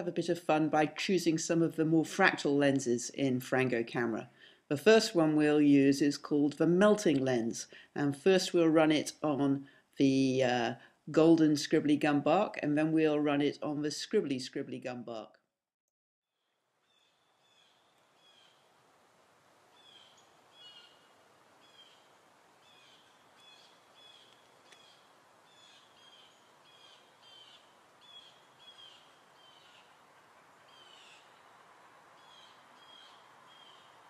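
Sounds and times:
steady background hiss: 16.8 - 34.0
short high bird calls: 19.8 - 30.0.

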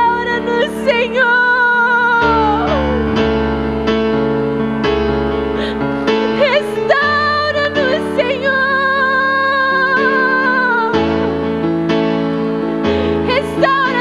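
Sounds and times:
woman singing: 0.0 - 3.1, 6.3 - 11.1, 13.2 - 14.0
electric piano chords: 0.0 - 14.0.

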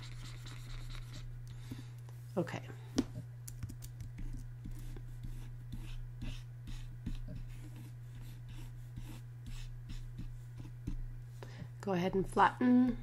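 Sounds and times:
stylus scratching on tablet: 0.0 - 1.3, 4.2 - 11.0
low electrical hum: 0.0 - 13.0.

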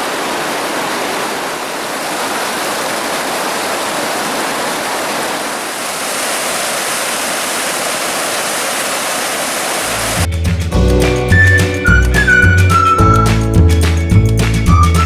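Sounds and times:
creek rushing over waterfall: 0.0 - 10.3
music with deep bass: 10.3 - 15.0.

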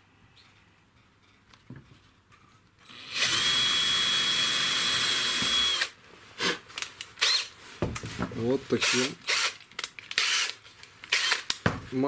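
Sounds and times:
cordless drill whining: 2.8 - 6.0, 7.2 - 7.5, 8.8 - 9.6, 10.2 - 11.5.

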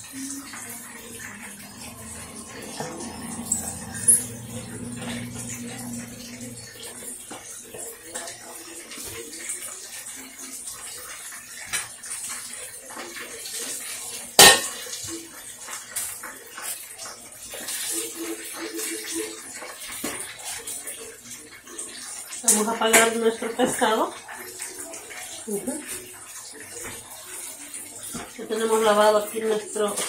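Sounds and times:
oil sizzling in a pan: 0.0 - 30.0
metal bowl clanking on counter: 0.2 - 7.3, 14.4 - 15.1.

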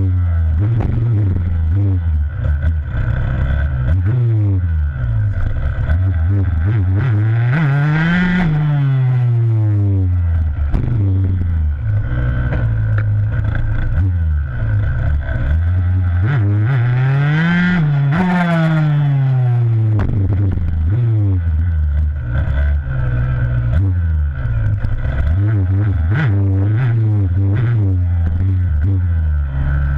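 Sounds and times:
dirt bike engine revving: 0.0 - 29.9.

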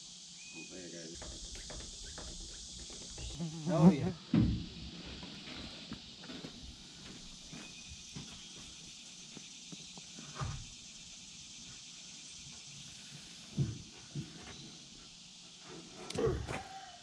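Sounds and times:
high insect drone: 0.0 - 17.0
hydraulic hose thumps and knocks: 1.1 - 5.3, 10.3 - 10.8, 13.5 - 14.6.

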